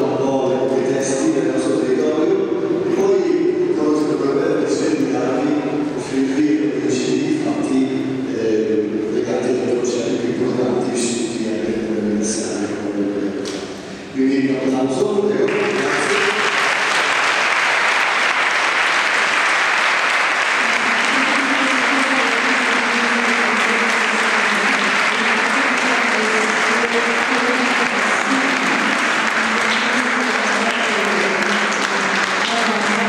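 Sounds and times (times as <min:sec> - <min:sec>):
audience applauding: 0:15.3 - 0:33.0.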